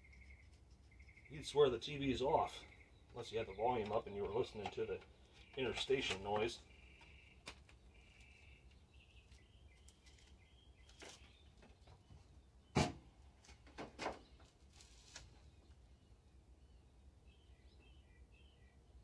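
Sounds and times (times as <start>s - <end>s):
faint bird chirping: 0.0s - 13.4s, 14.2s - 19.0s
equipment handling clicks and knocks: 3.8s - 6.5s.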